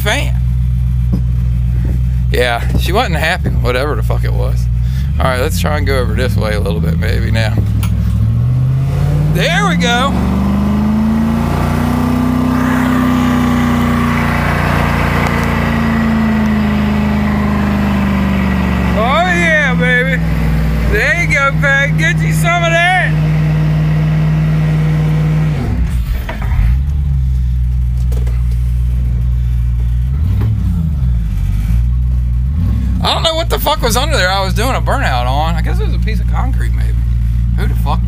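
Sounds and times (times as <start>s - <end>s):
car engine at high revs: 0.1s - 38.0s
wheels spinning on dirt: 12.4s - 19.8s.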